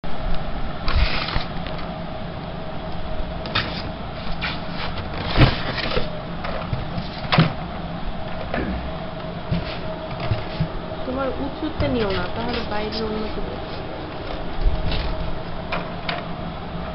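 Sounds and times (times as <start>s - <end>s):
plastic toy rustling and scraping: 0.9s - 1.6s, 3.5s - 7.4s, 9.5s - 10.8s, 11.8s - 15.4s.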